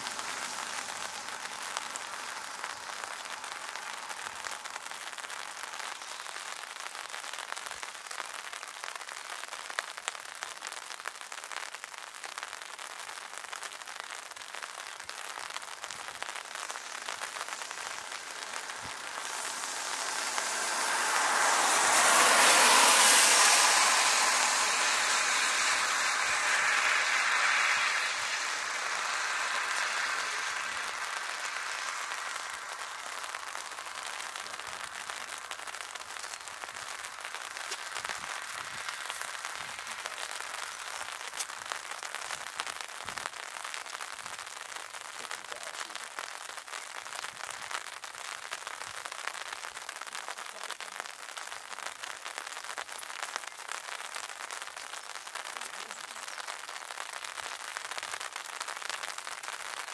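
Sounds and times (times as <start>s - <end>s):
jet engine roar: 0.0s - 5.6s, 16.2s - 41.4s
rain pattering: 0.0s - 59.9s.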